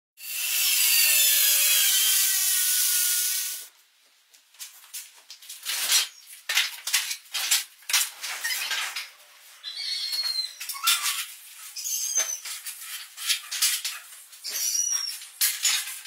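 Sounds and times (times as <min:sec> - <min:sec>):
circular saw cutting wood: 0:00.2 - 0:03.7
scrapes and knocks: 0:10.8 - 0:16.0.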